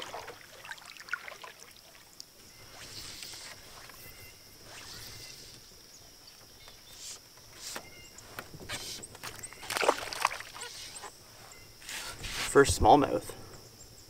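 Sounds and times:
high insect buzz: 1.4s - 14.0s
fish splashing at water surface: 9.6s - 11.0s.

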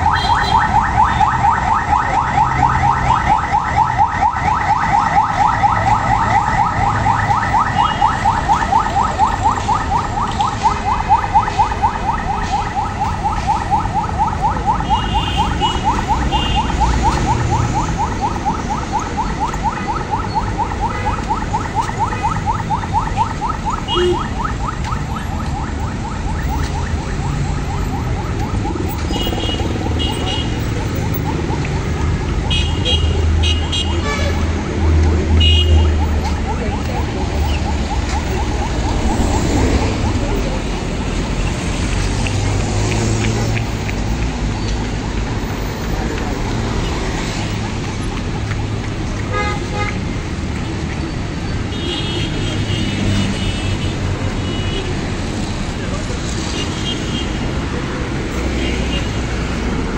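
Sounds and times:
car alarm chirping: 0.0s - 34.1s
street traffic rumble: 0.0s - 59.9s.

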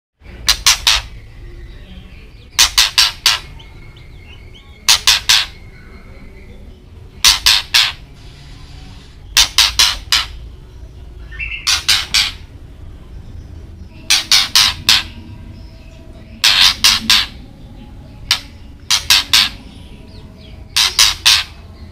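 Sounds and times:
soft bird notes: 0.2s - 21.9s
bird harsh clicking calls: 0.4s - 1.4s, 2.4s - 6.0s, 7.2s - 10.5s, 11.3s - 12.6s, 14.0s - 15.2s, 16.3s - 17.4s, 18.2s - 21.9s.

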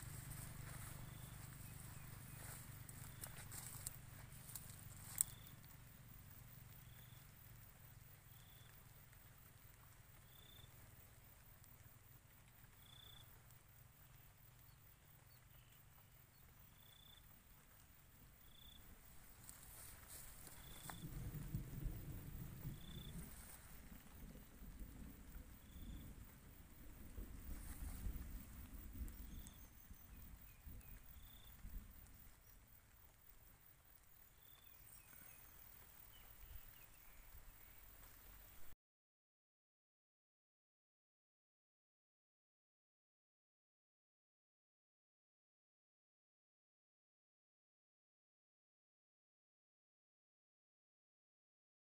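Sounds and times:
faint high chirps: 0.0s - 9.2s.

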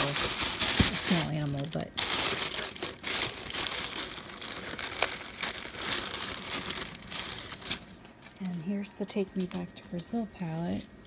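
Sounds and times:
tissue paper crinkling: 0.0s - 8.6s.

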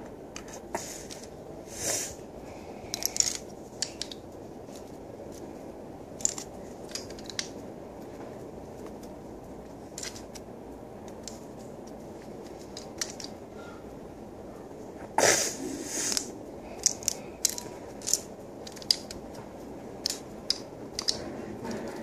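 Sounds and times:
steady low hiss: 0.0s - 22.0s
plastic bricks clicking: 2.9s - 4.2s, 6.2s - 7.6s, 10.0s - 10.4s, 12.7s - 13.4s, 16.1s - 19.2s, 20.0s - 21.2s.

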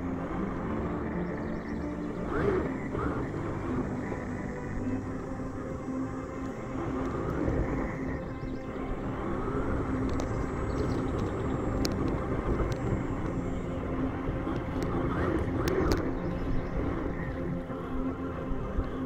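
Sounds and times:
electric motor whine: 0.0s - 19.0s
low rushing noise: 0.0s - 19.0s
sharp clicks: 9.8s - 13.6s, 14.4s - 17.4s.

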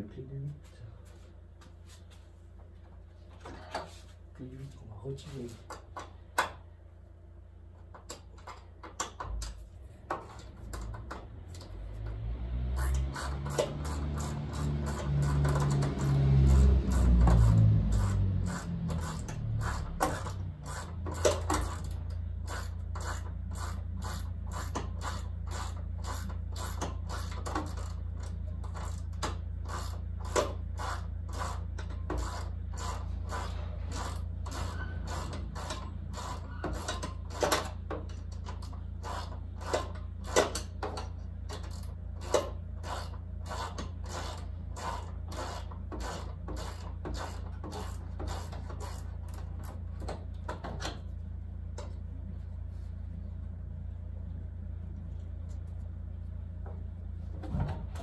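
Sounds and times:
steady low hum: 0.0s - 58.0s
ratchet wrench clicking: 12.8s - 49.8s.

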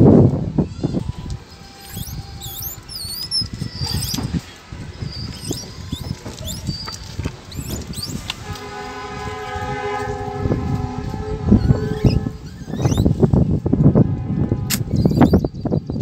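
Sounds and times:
high wavering chirps: 1.7s - 8.2s
steady horn-like tone: 7.6s - 13.0s, 13.6s - 15.1s.

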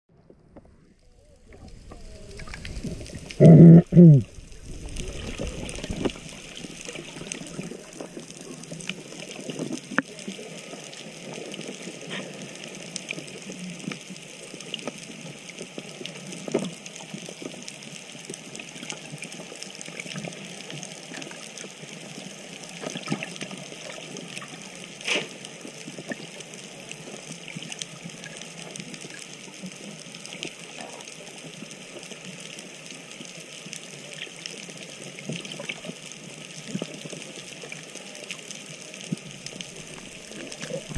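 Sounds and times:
watery underwater hiss: 1.5s - 14.9s, 18.6s - 27.7s.

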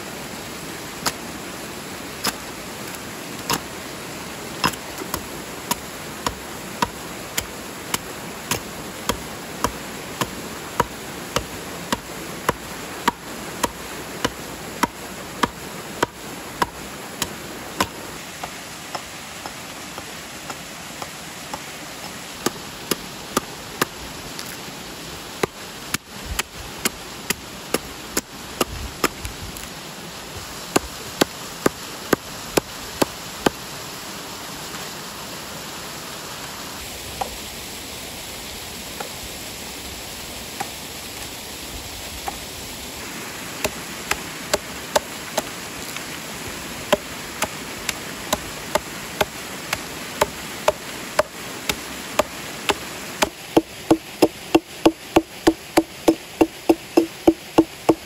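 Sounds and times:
waterfall rushing: 0.0s - 58.0s
hatchet chopping wood: 2.2s - 3.7s, 4.6s - 24.6s, 25.4s - 29.3s, 30.7s - 33.6s, 43.6s - 45.5s, 46.9s - 58.0s.

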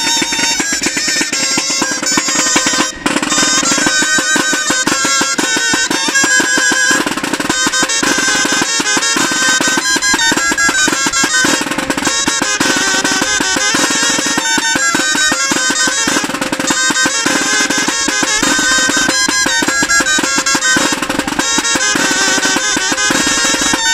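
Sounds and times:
busy drum beat: 0.0s - 23.9s
wind instruments playing: 0.0s - 23.9s.

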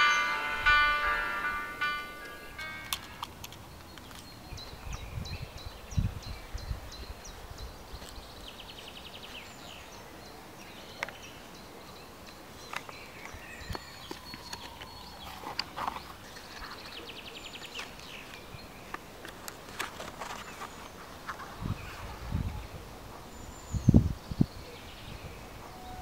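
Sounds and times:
paper crinkling: 19.3s - 21.4s.

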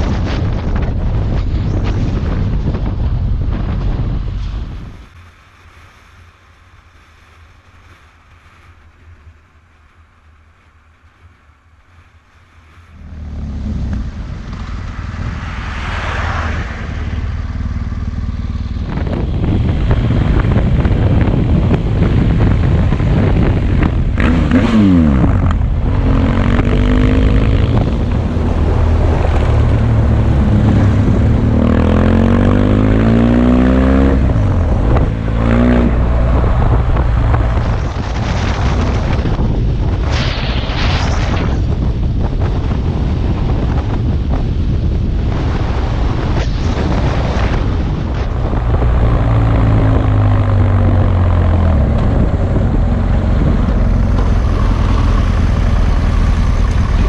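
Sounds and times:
wind rush: 0.0s - 9.4s, 11.0s - 57.0s
motorcycle engine: 13.0s - 39.7s, 47.4s - 57.0s.

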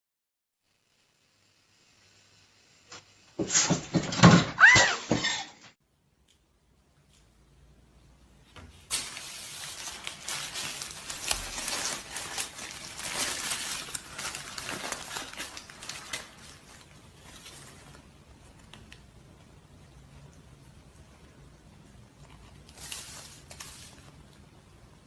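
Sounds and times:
paper wrapper crinkling: 8.9s - 19.0s, 22.2s - 24.4s.

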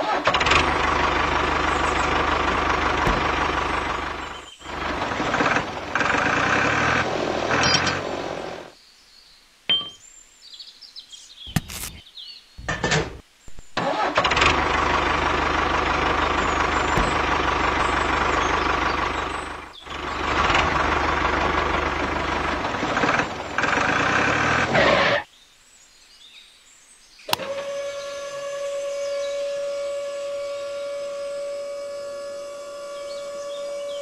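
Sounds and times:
toy tractor running: 0.0s - 8.6s, 13.8s - 25.2s, 27.3s - 34.0s
low hum: 0.3s - 8.7s, 14.3s - 24.3s.

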